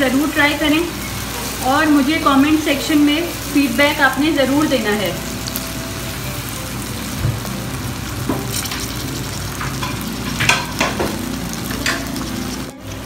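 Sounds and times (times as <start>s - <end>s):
food sizzling in a wok: 0.0s - 13.0s
spatula scraping pan: 8.2s - 12.8s.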